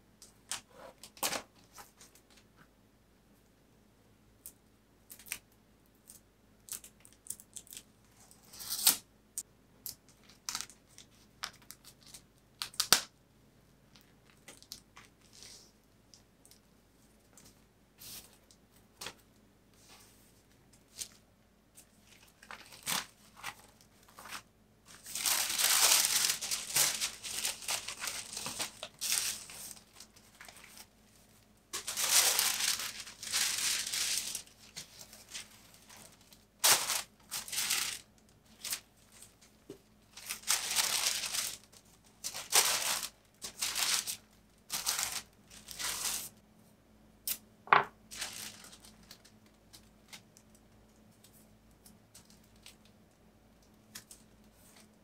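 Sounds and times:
tissue paper rustling: 22.0 - 30.9, 31.8 - 39.4, 40.1 - 46.4, 48.1 - 49.2.

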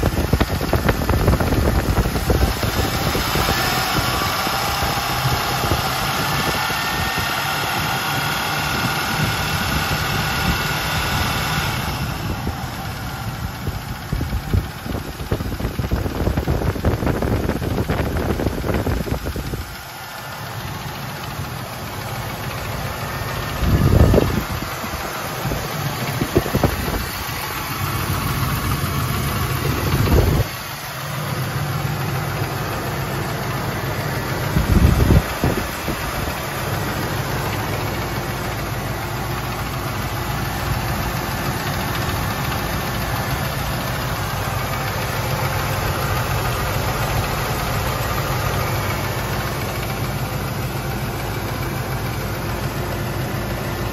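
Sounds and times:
engine idling with tapping: 0.0 - 53.9.

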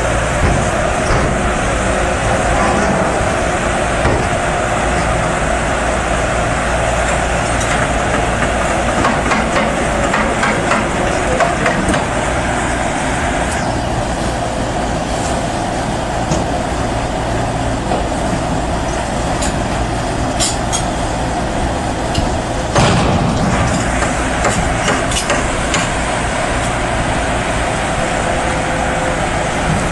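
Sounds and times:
diesel engine running: 0.0 - 29.9
metallic scraping and clanking: 0.4 - 5.7.

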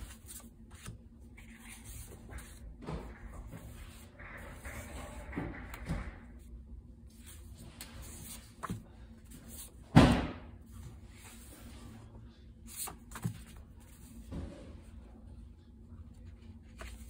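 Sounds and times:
paper notecards rustling: 7.1 - 9.7, 16.6 - 17.0.

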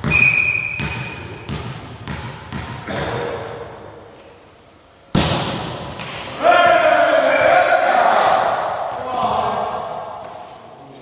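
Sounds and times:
referee whistle: 0.0 - 1.2
ball bouncing on hall floor: 0.0 - 3.6, 5.1 - 6.2.

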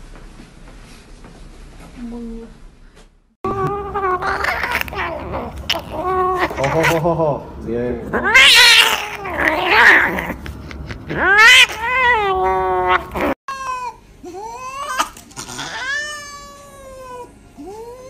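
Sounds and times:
cat moaning meows: 3.5 - 7.0, 8.1 - 10.4, 11.0 - 18.0
cat yowling: 3.5 - 7.0, 8.1 - 10.4, 11.1 - 18.0.

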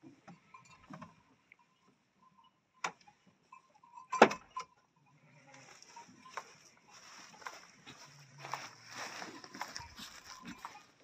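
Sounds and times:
faint high ringing tone: 0.3 - 0.9.

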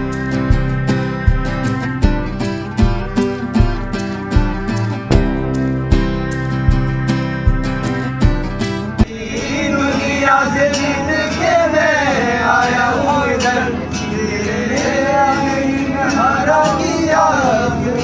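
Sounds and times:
men singing together: 9.0 - 18.0.

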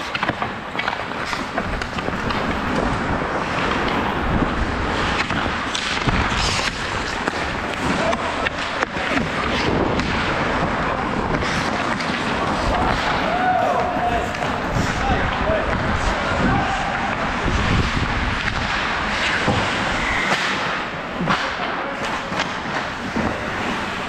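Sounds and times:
sticks clacking on puck: 0.0 - 4.2, 5.0 - 24.0
skates scraping ice: 0.0 - 24.0
steady rush of noise: 0.0 - 24.0.

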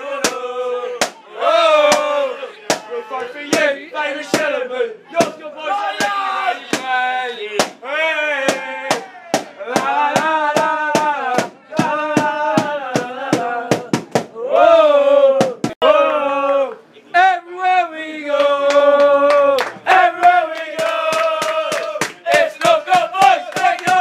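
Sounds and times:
football supporters chanting: 0.0 - 24.0
sharp drum beats: 1.8 - 2.9, 5.2 - 7.0, 7.6 - 7.8, 8.4 - 14.4, 15.4 - 15.8, 20.8 - 24.0.

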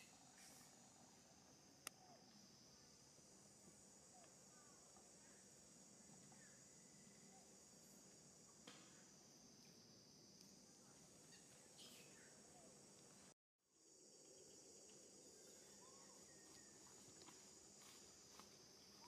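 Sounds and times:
high-pitched insect drone: 13.7 - 19.0.

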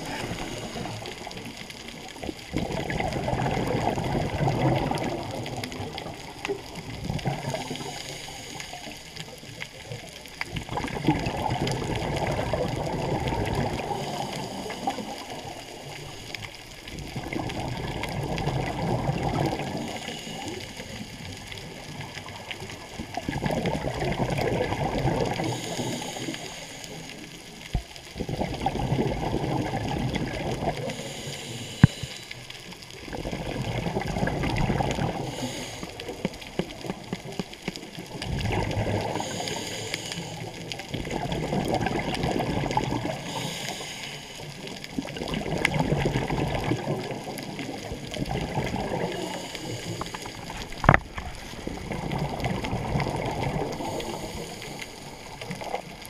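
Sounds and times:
regulator inhale hiss: 0.0 - 1.5, 7.5 - 9.3, 13.8 - 16.6, 19.7 - 21.8, 25.4 - 27.6, 30.8 - 32.9, 35.1 - 36.7, 39.0 - 40.8, 43.1 - 44.8, 49.0 - 51.6, 53.6 - 55.8
diver exhaling bubbles: 0.0 - 8.7, 10.5 - 16.2, 16.9 - 20.7, 21.6 - 26.6, 28.1 - 32.2, 33.0 - 37.2, 38.1 - 56.0.

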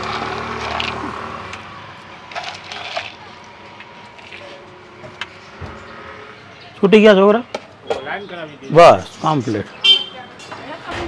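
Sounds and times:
vehicle engine hum: 0.0 - 6.7.

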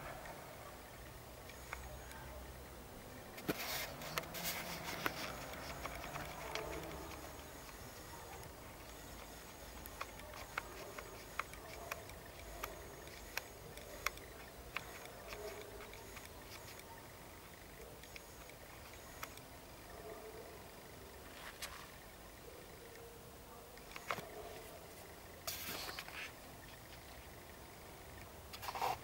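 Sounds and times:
crickets trilling: 0.2 - 29.0
sharp clicks: 1.4 - 2.3, 3.3 - 19.5, 23.8 - 24.4
rustling: 3.4 - 16.8.

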